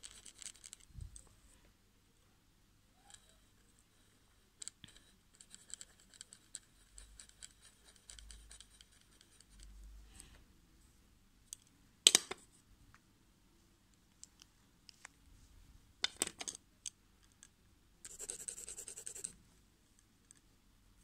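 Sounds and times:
pencil scratching on paper: 0:05.4 - 0:09.5, 0:18.1 - 0:19.4.

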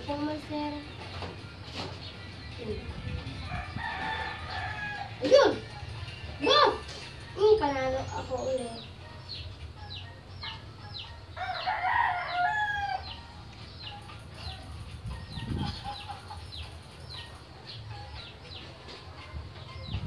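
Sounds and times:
chickens peeping: 0:12.9 - 0:18.7.

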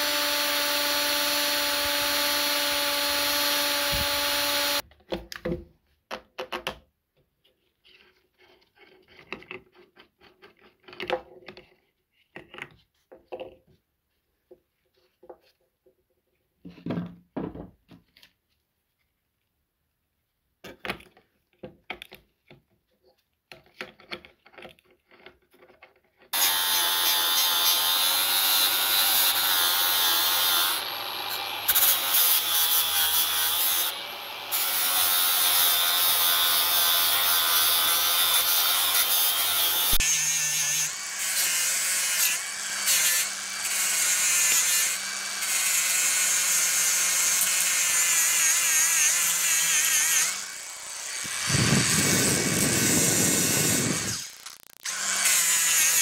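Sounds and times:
angle grinder grinding steel: 0:00.0 - 0:04.8, 0:26.4 - 0:56.0.

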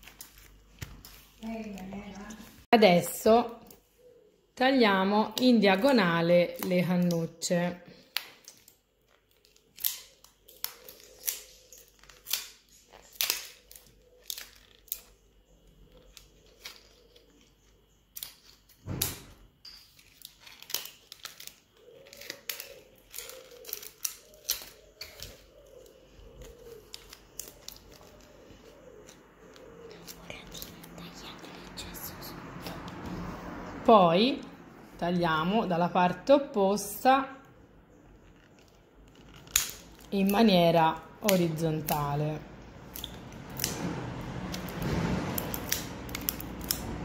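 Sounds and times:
scissors snipping plastic straws: 0:20.0 - 0:28.4, 0:39.3 - 0:42.2, 0:42.8 - 0:43.8, 0:44.4 - 0:47.0.

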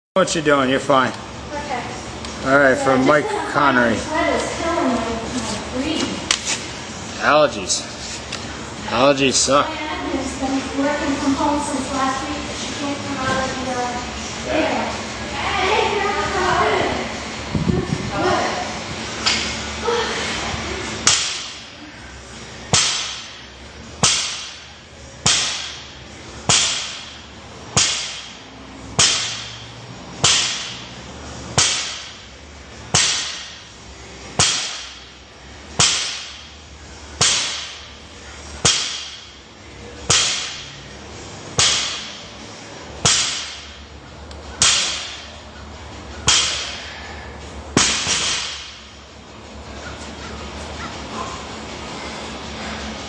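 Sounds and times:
barbell dropping on gym floor: 0:47.8 - 0:48.8.

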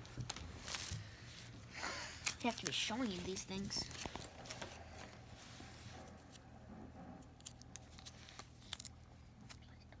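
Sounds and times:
plastic sleeve pages rustling: 0:00.0 - 0:01.5, 0:02.2 - 0:06.4, 0:07.4 - 0:09.6.

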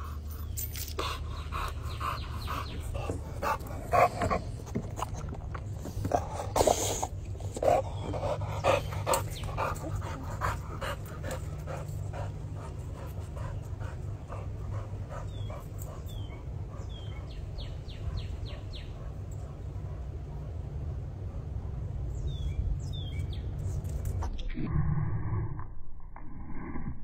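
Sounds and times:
dog panting: 0:00.0 - 0:20.2
steady low rumble: 0:00.0 - 0:27.0.

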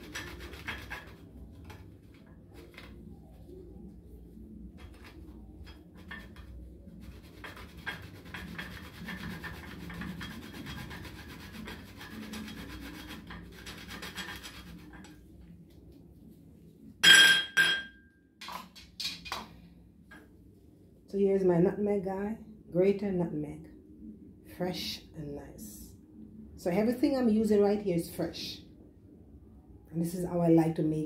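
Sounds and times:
nutmeg rasping on grater: 0:07.1 - 0:15.0.

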